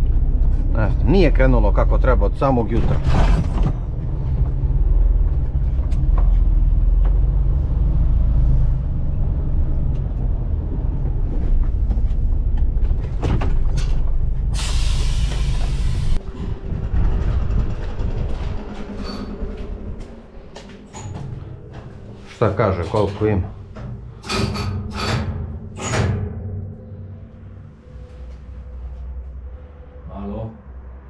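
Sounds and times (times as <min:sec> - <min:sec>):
air brake hiss: 0:14.6 - 0:16.2.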